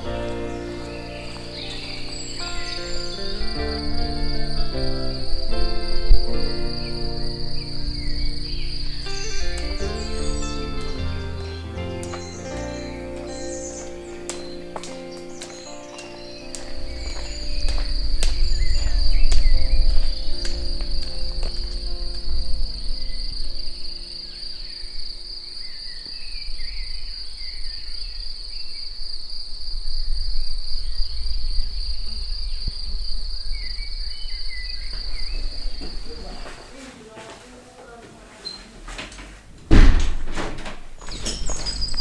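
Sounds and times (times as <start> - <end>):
deep low rumble: 0.0 - 14.6, 16.6 - 25.4, 29.7 - 36.5, 41.1 - 42.0
soft low musical notes: 0.0 - 26.0.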